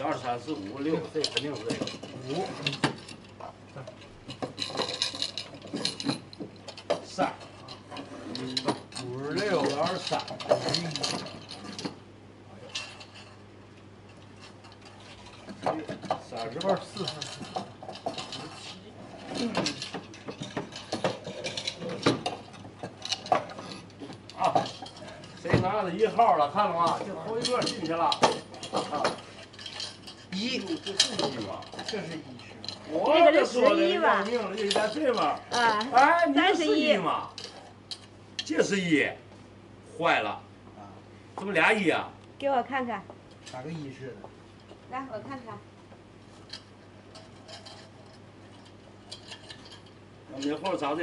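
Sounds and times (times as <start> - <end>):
wooden drawers knocking and clattering: 19.3 - 24.8, 25.5 - 25.8.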